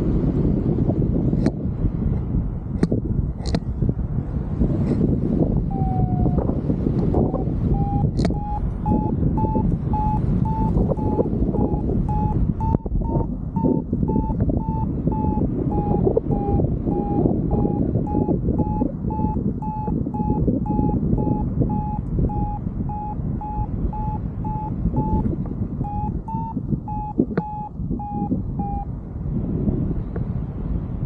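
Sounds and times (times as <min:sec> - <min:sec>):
wind rush on microphone: 0:00.0 - 0:31.0
variometer short beeps: 0:05.7 - 0:06.5, 0:07.2 - 0:28.9.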